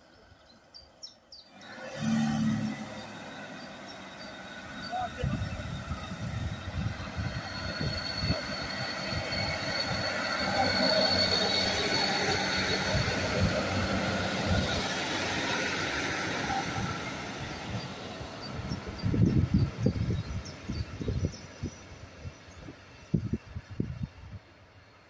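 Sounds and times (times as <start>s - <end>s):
diesel train engines rumbling: 0.0s - 25.0s
train wheels on rails: 1.5s - 25.0s
wind buffeting microphone: 5.0s - 24.6s.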